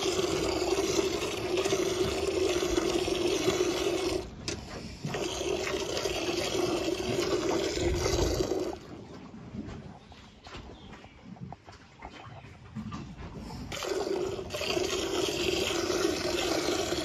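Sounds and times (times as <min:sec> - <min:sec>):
milk squirting into metal pail: 0:13.7 - 0:17.0.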